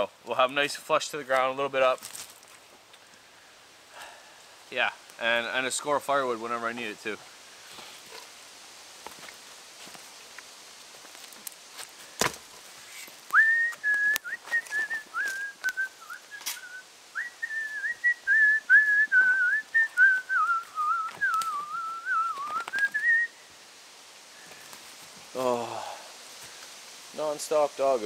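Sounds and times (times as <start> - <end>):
man whistling a tune: 13.3 - 23.4.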